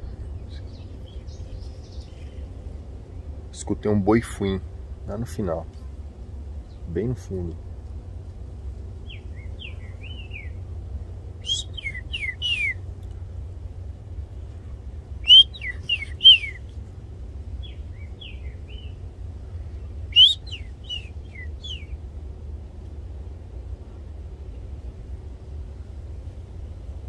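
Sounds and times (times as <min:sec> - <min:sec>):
birds singing whistled phrases: 0:09.0 - 0:10.6, 0:11.4 - 0:12.8, 0:15.2 - 0:16.7, 0:17.6 - 0:19.0, 0:20.1 - 0:22.0.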